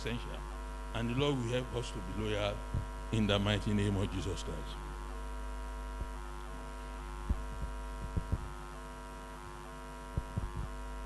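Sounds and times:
electrical mains hum: 0:00.0 - 0:11.0
short low thumps: 0:02.6 - 0:03.0, 0:07.2 - 0:08.6, 0:10.2 - 0:10.8.

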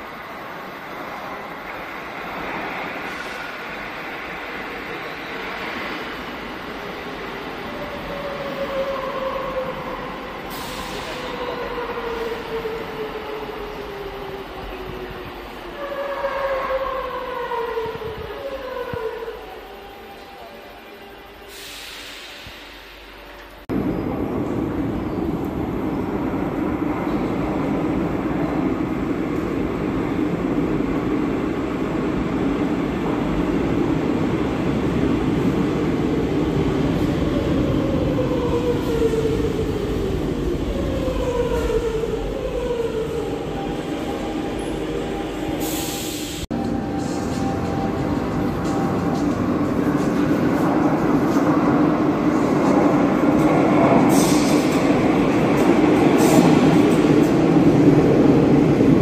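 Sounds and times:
train wheels rumbling on rails: 0:21.5 - 0:59.0.

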